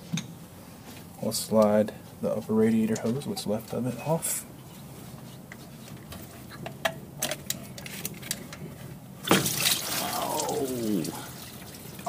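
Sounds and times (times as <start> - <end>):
coolant gushing and splashing: 9.2 - 12.0.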